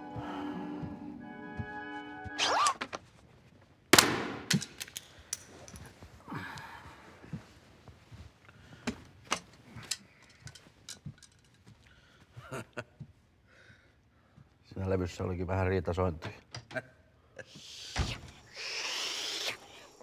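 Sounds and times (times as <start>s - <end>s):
soft rustle: 5.5s - 12.4s.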